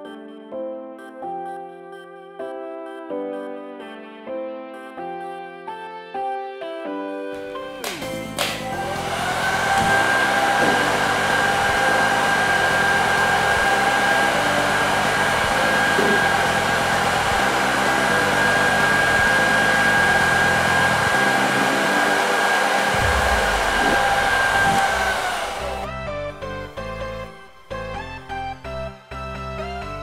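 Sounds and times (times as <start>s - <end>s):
hair dryer blowing: 7.4s - 26.0s.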